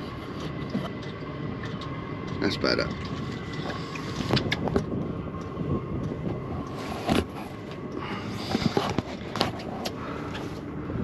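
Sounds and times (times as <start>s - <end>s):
steady low rumble: 0.0s - 11.0s
camera handling knocks and scrapes: 8.4s - 10.0s.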